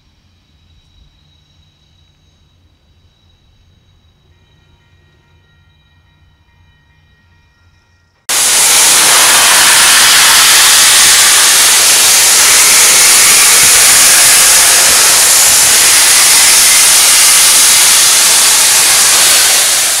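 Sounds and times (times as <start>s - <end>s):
steam locomotive venting steam: 8.3s - 20.0s.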